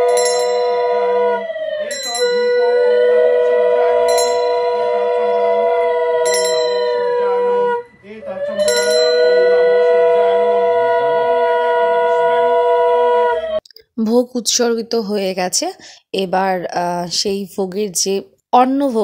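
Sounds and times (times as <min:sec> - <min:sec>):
brass hand bell struck: 0:00.0 - 0:01.1, 0:01.9 - 0:03.0, 0:04.1 - 0:05.4, 0:06.2 - 0:07.6, 0:08.6 - 0:09.8
conch shells blown: 0:00.0 - 0:13.6.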